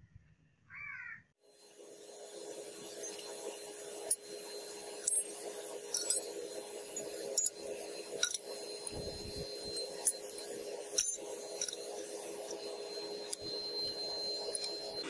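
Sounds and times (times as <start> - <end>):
steady hum: 1.5 - 15.0
metal fittings clinking into crucible: 5.0 - 15.0.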